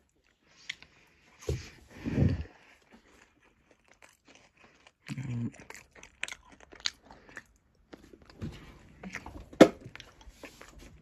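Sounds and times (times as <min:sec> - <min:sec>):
chocolate bar crunching: 0:02.9 - 0:10.3.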